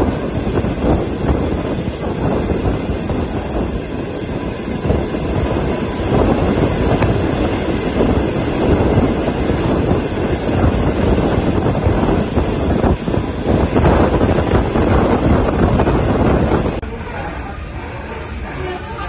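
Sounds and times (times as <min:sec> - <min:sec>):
rushing air: 0:00.0 - 0:19.0
train wheels rumbling on rail: 0:00.0 - 0:19.0.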